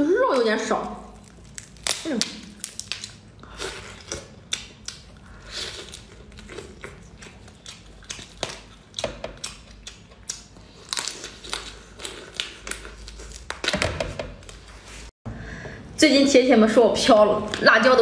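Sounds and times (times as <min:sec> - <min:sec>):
crunching shrimp shell: 0:01.2 - 0:05.2.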